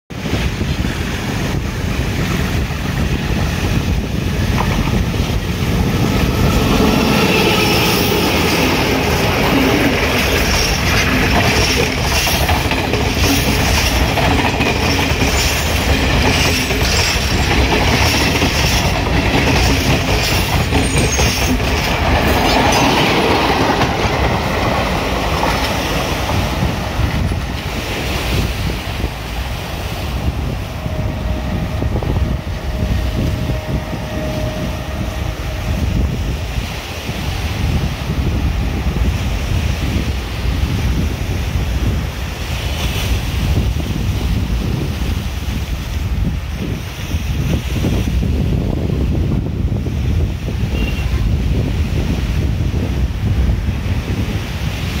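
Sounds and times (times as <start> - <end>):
diesel train passing: 0.1 - 55.0
train wheels clicking over rail joints: 2.2 - 31.0.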